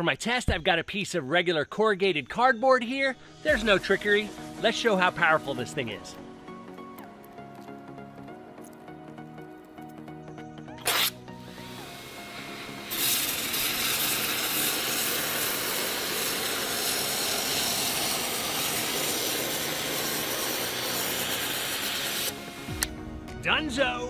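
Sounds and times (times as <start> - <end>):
background music: 2.7 - 24.0
loud spray burst: 3.4 - 5.7, 10.8 - 23.0
pressure washer spraying: 3.5 - 6.0, 10.8 - 23.0.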